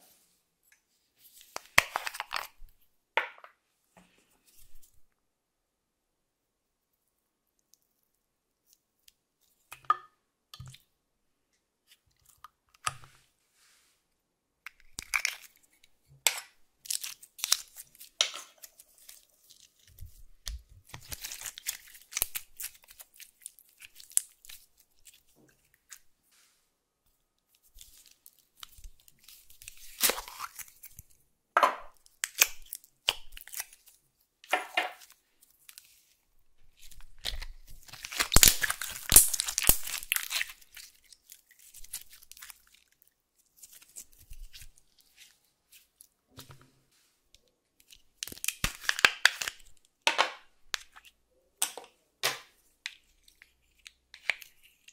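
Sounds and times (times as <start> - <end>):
sticky slime crackling and popping: 32.0 - 33.9, 36.8 - 43.0.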